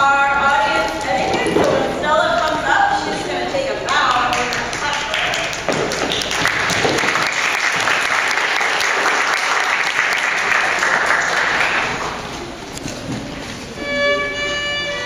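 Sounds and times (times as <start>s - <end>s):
audience clapping: 3.9s - 12.4s.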